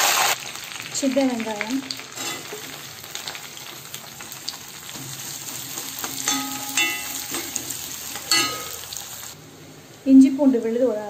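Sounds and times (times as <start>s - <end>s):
shallots sizzling in oil: 0.0s - 11.0s
metal ladle scraping pan: 2.2s - 2.8s, 6.0s - 9.0s.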